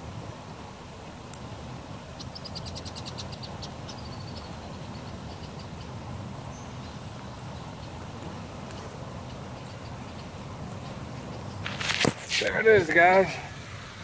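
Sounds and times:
songbird trilling: 2.2s - 8.0s, 8.6s - 11.6s.

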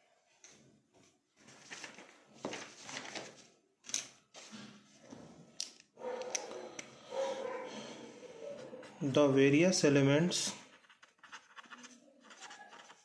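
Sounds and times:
soft rustling at a desk: 0.3s - 3.5s
pen clicks: 5.6s - 6.9s.

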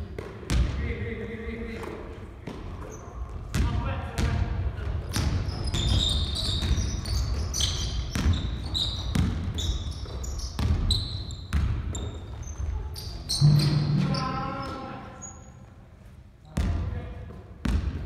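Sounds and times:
basketballs bouncing on wooden floor: 0.0s - 1.0s, 1.7s - 13.1s, 16.5s - 18.0s
sneakers squeaking on court: 2.4s - 16.8s.

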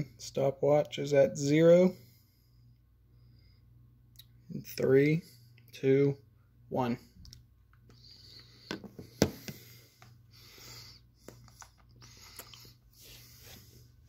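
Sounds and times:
man breathing: 1.9s - 3.8s, 7.9s - 14.0s
wet mouth clicks sucking candy: 11.2s - 12.8s.

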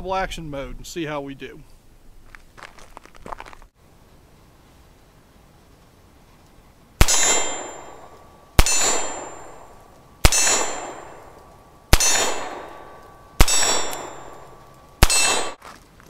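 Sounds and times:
revolver shots: 7.0s - 15.6s
steel target clanging: 7.0s - 15.6s.

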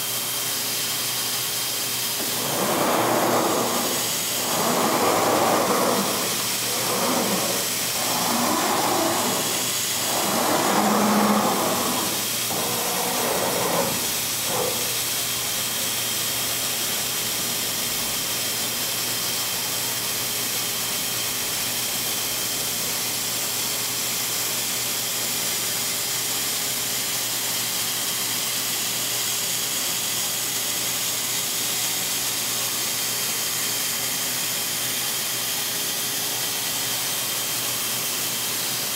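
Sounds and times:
router machine hissing: 2.2s - 15.1s.

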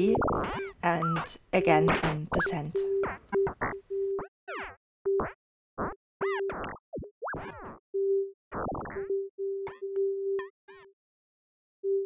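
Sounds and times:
bending synth blips: 0.0s - 10.0s.

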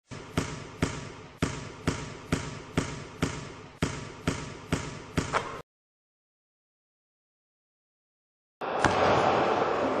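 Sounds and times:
basketball bouncing on hard court: 0.1s - 5.6s.

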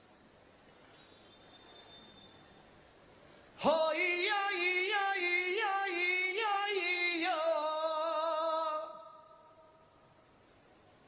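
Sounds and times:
faint background noise: 0.0s - 11.0s
person singing unaccompanied: 3.6s - 9.6s.

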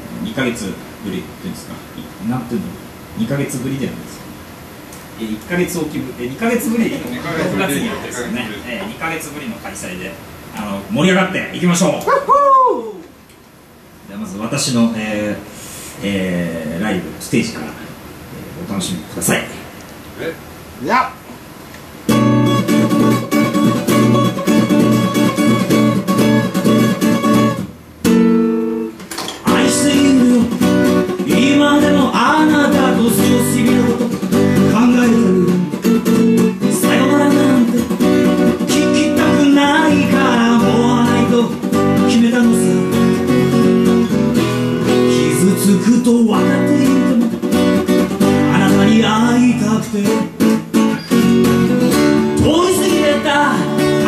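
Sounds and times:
acoustic guitar strumming chords: 22.0s - 54.0s
man singing: 29.4s - 35.9s, 36.5s - 43.2s, 44.9s - 47.4s, 48.2s - 50.5s, 52.3s - 54.0s.

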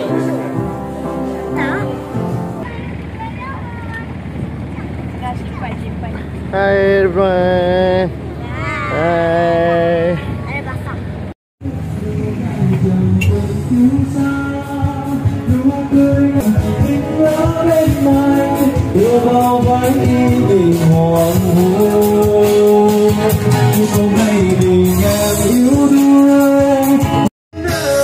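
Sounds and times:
song with singing voice: 11.6s - 28.0s.

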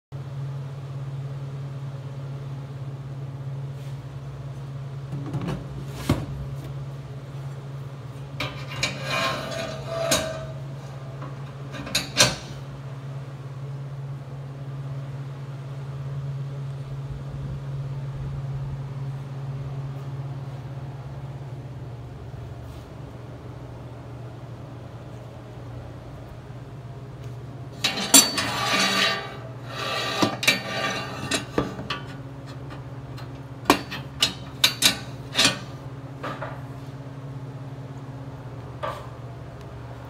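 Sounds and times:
steady low hum: 0.2s - 40.0s
metal clatter: 27.8s - 29.4s.

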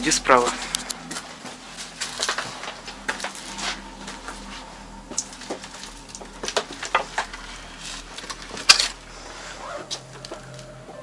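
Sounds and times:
debris crunching: 0.2s - 10.8s
wood cracking: 5.1s - 10.8s.

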